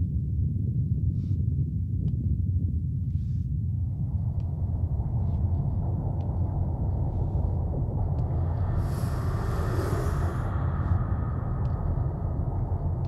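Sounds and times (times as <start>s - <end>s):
low rumbling magical drone: 2.5s - 13.0s
hissing layer: 8.3s - 13.0s.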